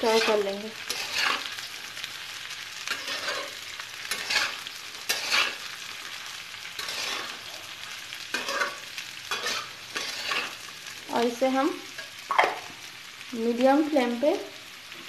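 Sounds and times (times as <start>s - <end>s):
vegetables sizzling in hot oil: 0.0s - 15.0s
steel spatula scraping pan: 0.1s - 1.5s, 2.9s - 5.7s, 6.8s - 7.4s, 8.3s - 10.6s.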